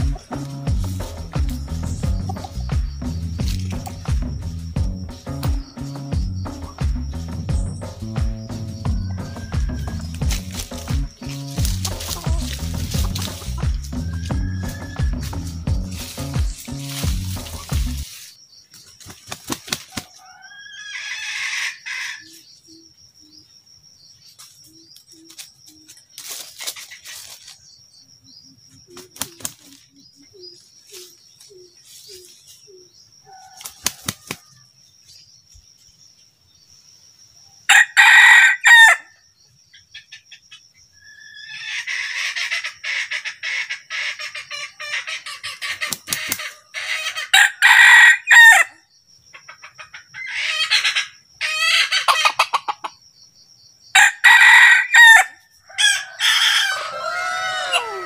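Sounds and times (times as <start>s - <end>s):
rooster crowing: 8.8s - 10.4s, 14.0s - 15.6s, 20.0s - 22.3s, 33.2s - 34.7s, 37.7s - 39.1s, 46.7s - 48.8s, 54.0s - 58.0s
rooster calling: 8.8s - 18.0s, 20.0s - 22.3s, 37.7s - 39.1s, 54.0s - 58.0s
wing flapping: 10.1s - 13.9s, 18.8s - 20.2s, 28.9s - 29.9s, 33.6s - 34.6s, 45.7s - 46.6s.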